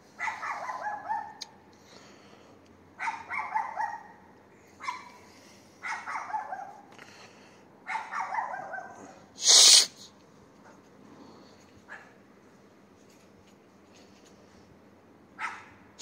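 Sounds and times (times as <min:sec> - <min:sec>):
dog barking: 0:00.2 - 0:01.5, 0:03.0 - 0:04.2, 0:04.8 - 0:05.2, 0:05.8 - 0:06.8, 0:07.8 - 0:09.2, 0:11.9 - 0:12.2, 0:15.4 - 0:15.8
loud hiss-like noise burst: 0:09.4 - 0:10.1.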